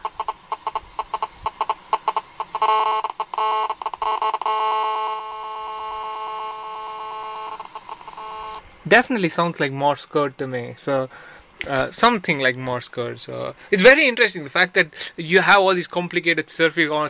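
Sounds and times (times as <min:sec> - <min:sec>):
radio interference buzz: 0:00.0 - 0:09.0.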